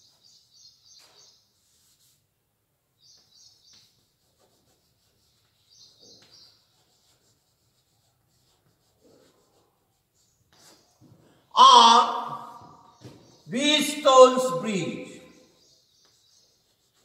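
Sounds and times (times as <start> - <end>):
chalk writing on blackboard: 0.0 - 2.4, 3.2 - 11.5, 15.8 - 17.0.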